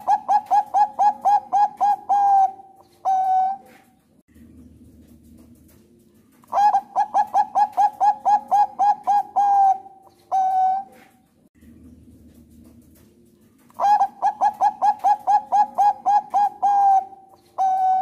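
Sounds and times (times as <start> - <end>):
dove cooing: 0.0 - 4.0, 6.4 - 11.3, 13.7 - 18.0.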